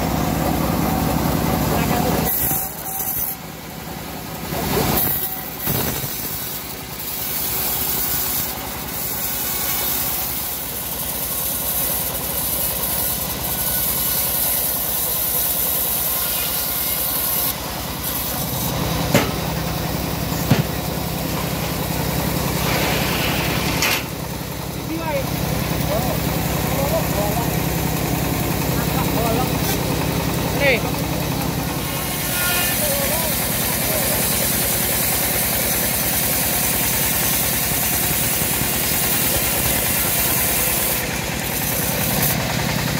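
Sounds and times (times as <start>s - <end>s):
saw blade cutting wood: 0.0s - 3.6s, 4.3s - 42.9s
sawmill machine drone: 0.0s - 42.9s
sharp knocks: 19.1s - 19.5s, 20.4s - 20.8s.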